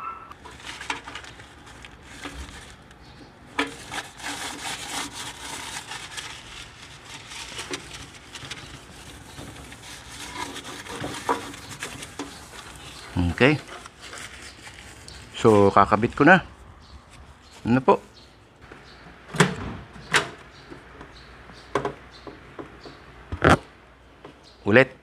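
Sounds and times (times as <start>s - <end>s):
hand rubbing and scraping: 0.3s - 18.7s.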